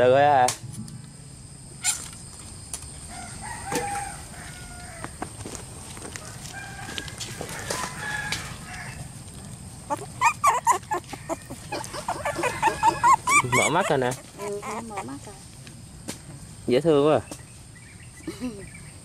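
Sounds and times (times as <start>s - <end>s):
rooster crowing: 3.0s - 5.2s, 6.1s - 9.1s, 10.2s - 14.1s
chickens clucking: 9.8s - 15.5s.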